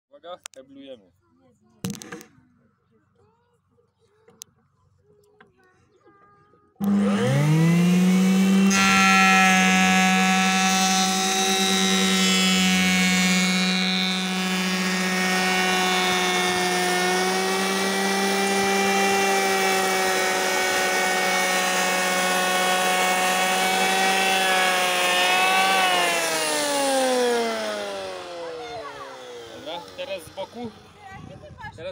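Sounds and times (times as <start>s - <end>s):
electric hand planer whining: 6.8s - 31.2s.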